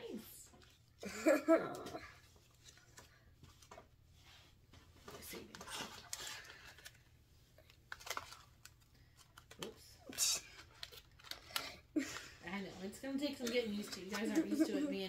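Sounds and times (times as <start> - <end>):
paper money rustling: 5.2 - 12.2, 13.2 - 15.0.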